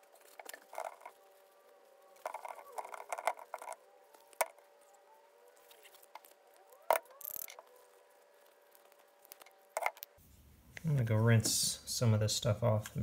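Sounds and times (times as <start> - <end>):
plastic parts clicking: 0.1 - 1.2, 2.2 - 4.7, 5.7 - 7.7, 8.7 - 10.1.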